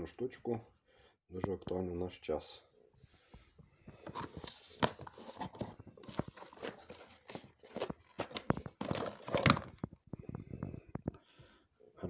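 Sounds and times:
cardboard box rustling and scraping: 0:03.9 - 0:10.0.

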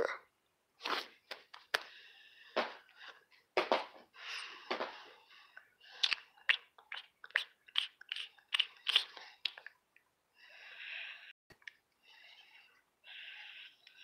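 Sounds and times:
soft breathing: 0:01.7 - 0:03.4, 0:04.1 - 0:06.0, 0:10.3 - 0:14.0.

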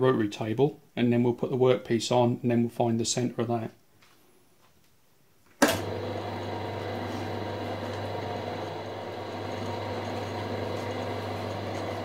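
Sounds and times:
milling machine motor humming: 0:05.7 - 0:12.0.

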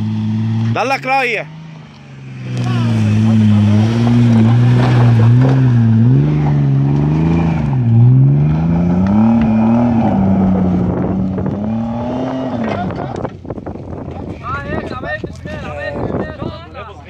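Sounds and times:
engine revving hard: 0:00.0 - 0:13.2.

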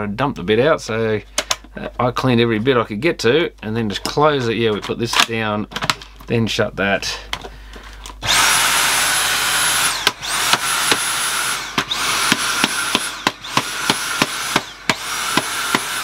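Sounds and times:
vacuum cleaner motor whining: 0:08.2 - 0:16.0.

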